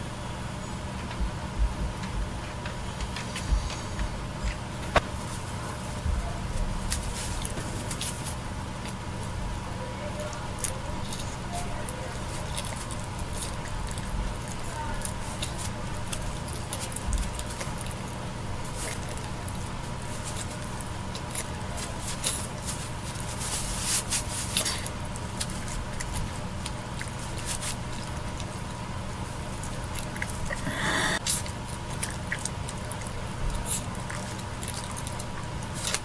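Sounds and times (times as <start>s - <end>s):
low hum: 0.0s - 21.4s.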